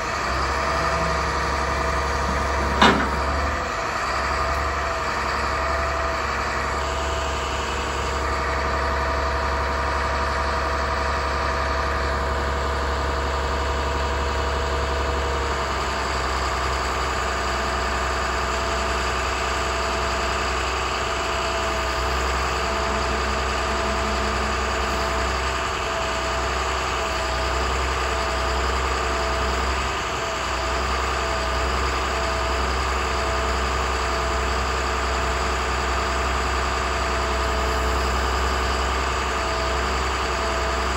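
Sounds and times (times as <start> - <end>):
hydraulic whine: 0.0 - 16.5, 21.4 - 32.4
diesel engine idling: 0.0 - 40.9.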